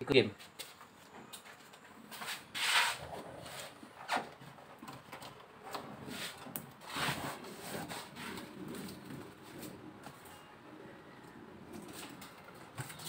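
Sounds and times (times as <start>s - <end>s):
hand rubbing foam sheet: 2.2s - 4.2s, 6.0s - 9.9s.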